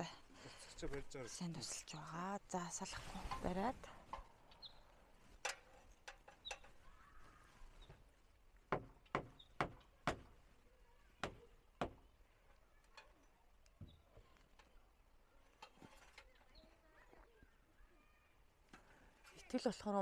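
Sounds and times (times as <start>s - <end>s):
hammer knocking on wooden boards: 8.7s - 10.3s, 11.2s - 12.0s.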